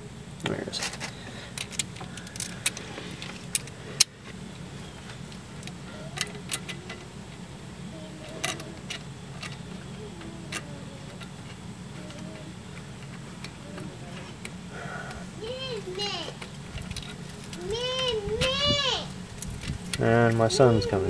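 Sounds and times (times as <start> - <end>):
steady low hum: 0.0 - 21.0
metallic clicks of tools and bolts: 5.3 - 7.1.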